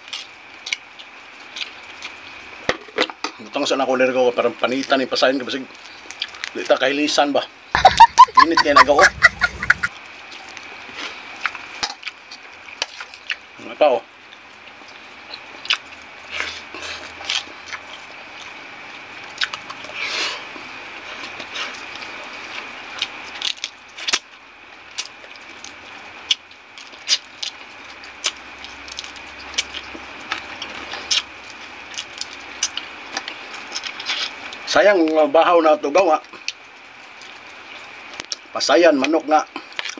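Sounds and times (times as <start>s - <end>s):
chewing and lip-smacking: 0.1s - 2.3s, 6.0s - 6.5s, 11.0s - 13.4s, 14.3s - 24.3s, 24.9s - 34.7s, 36.3s - 38.4s, 39.6s - 39.9s
faint high hum: 7.8s - 9.9s.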